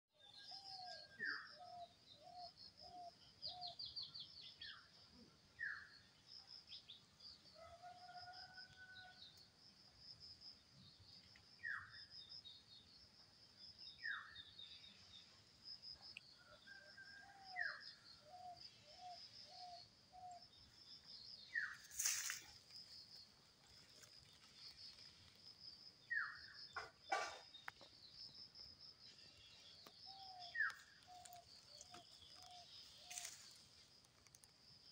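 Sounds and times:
constant high chirping: 0:09.9 - 0:34.9.

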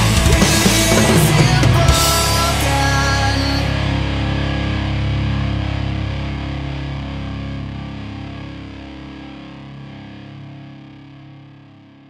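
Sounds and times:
distorted electric guitar chord: 0:00.0 - 0:12.0.

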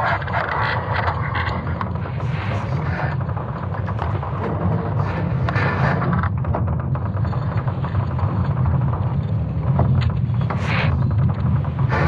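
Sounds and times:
crackling noise bursts: 0:00.0 - 0:12.0
deep steady rumble: 0:00.0 - 0:12.0.

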